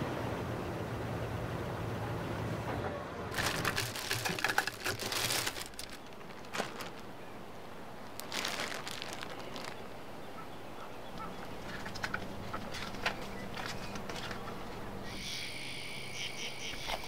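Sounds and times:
plastic bag crinkling: 3.3 - 10.2.

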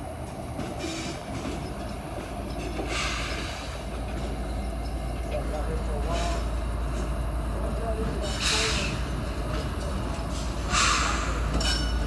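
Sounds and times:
distant train rumble: 0.0 - 12.0
short hiss: 10.4 - 11.5.

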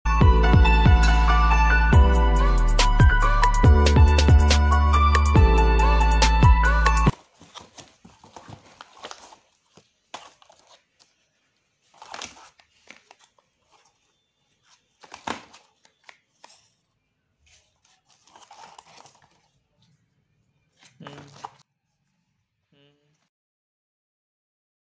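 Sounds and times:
cardboard boxes rustling and scraping: 7.1 - 16.8, 17.4 - 19.6.

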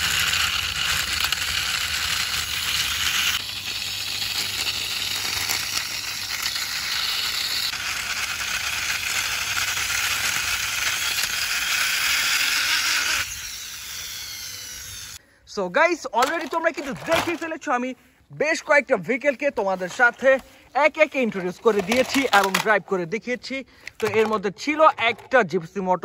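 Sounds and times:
plastic wheels rolling on concrete: 0.0 - 10.4, 16.2 - 17.6, 19.8 - 22.8, 23.9 - 25.5.

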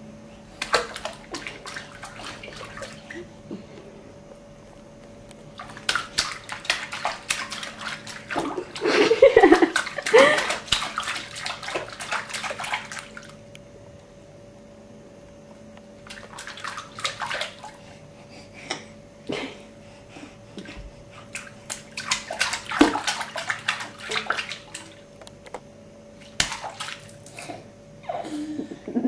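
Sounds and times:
baby splashing in bathwater: 0.6 - 3.3, 5.5 - 13.4, 16.0 - 17.8, 21.2 - 25.1, 26.2 - 27.5.

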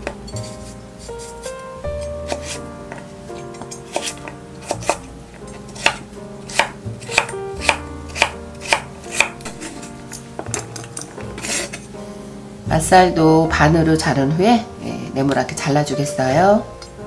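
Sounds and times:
knife chopping on wooden board: 2.3 - 3.0, 3.9 - 9.9.

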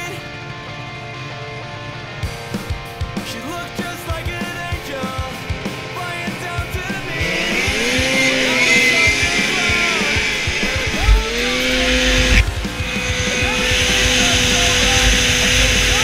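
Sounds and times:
rock music: 0.0 - 16.0
snowmobile engine revving hard: 5.6 - 16.0.

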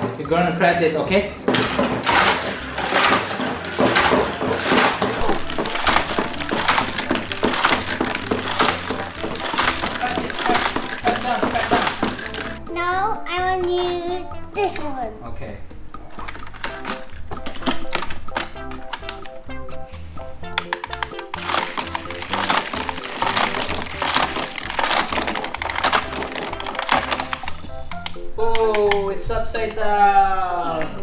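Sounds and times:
toy car rattling on plastic track: 1.5 - 12.8, 16.2 - 19.2, 20.6 - 27.7.

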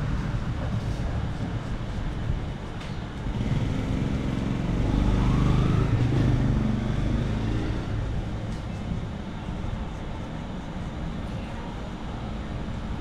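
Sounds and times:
motorbike passing by: 3.4 - 7.9.

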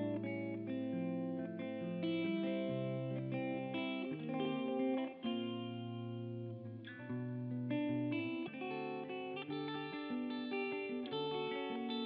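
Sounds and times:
plucked guitar melody: 0.0 - 12.0.

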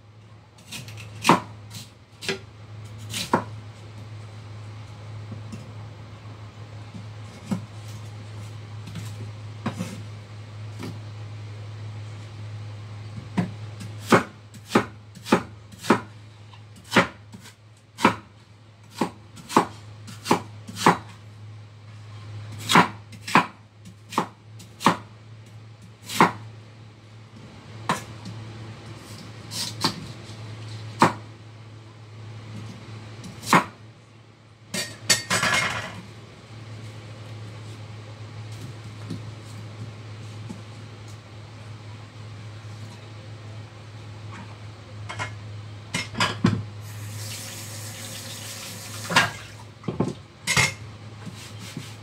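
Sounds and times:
cleaver chopping on wooden board: 26.1 - 26.4, 31.0 - 31.2.

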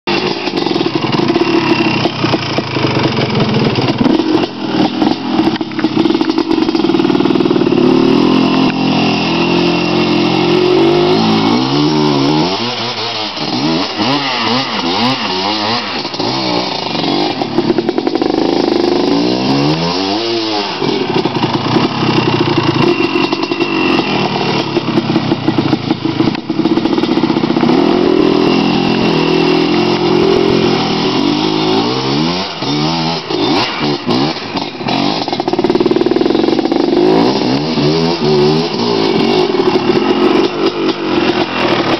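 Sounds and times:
quad engine revving: 0.0 - 41.9.

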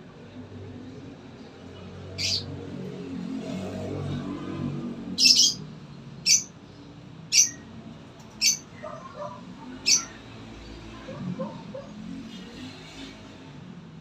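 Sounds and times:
bird calling high-pitched: 2.2 - 2.5, 5.2 - 5.6, 6.2 - 6.6, 7.3 - 7.7, 8.4 - 9.0, 9.8 - 10.2.

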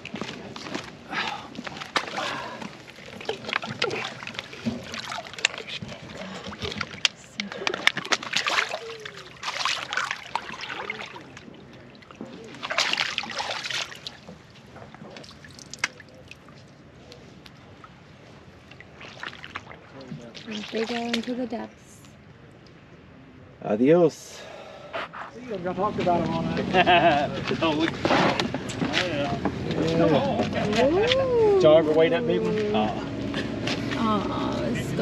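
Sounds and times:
fish splashing in water: 1.3 - 16.6, 18.6 - 21.4.

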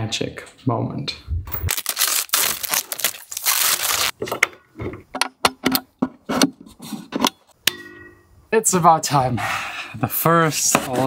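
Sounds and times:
plastic packaging rustling: 1.6 - 4.2.

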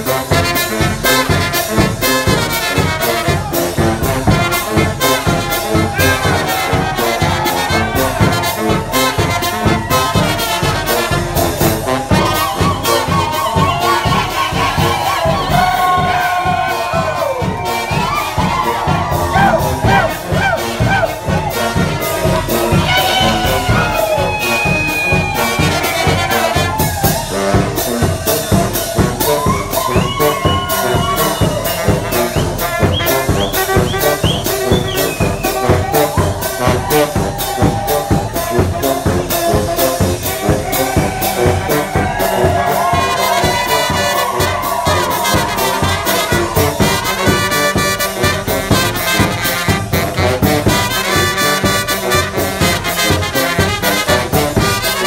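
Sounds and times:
saxophone: 0.0 - 55.0
steady drum beat: 0.0 - 55.0
trumpets: 0.0 - 55.0
tuba: 0.0 - 55.0.

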